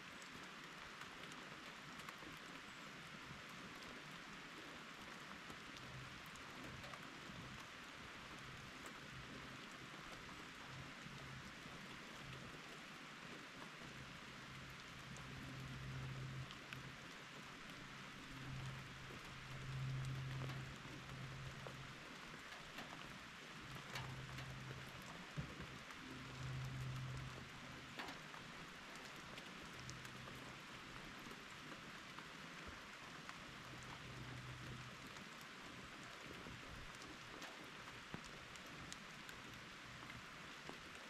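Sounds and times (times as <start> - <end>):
steady rain hiss: 0.0 - 41.0.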